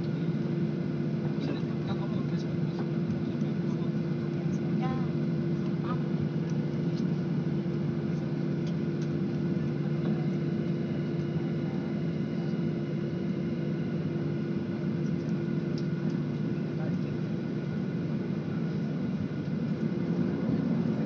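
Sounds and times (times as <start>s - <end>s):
jet engines droning in cabin: 0.0s - 21.0s.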